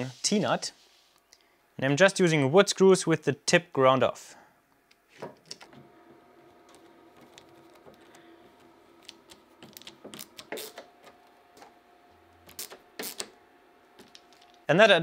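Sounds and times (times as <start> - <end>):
faint steady hum: 0.0 - 15.0
screws creaking into wood: 10.2 - 10.9.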